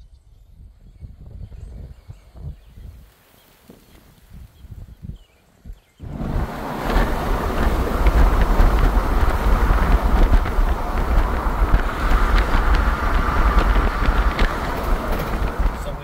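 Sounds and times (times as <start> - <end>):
wind buffeting microphone: 0.0 - 3.2, 3.8 - 16.0
vehicle road noise: 6.0 - 16.0.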